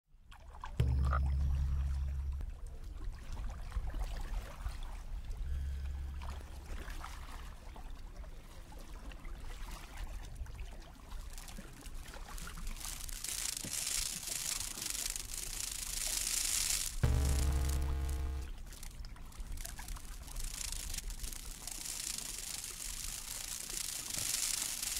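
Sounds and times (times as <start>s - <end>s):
low electronic hum: 0.8s - 2.9s, 5.2s - 7.4s, 12.7s - 24.9s.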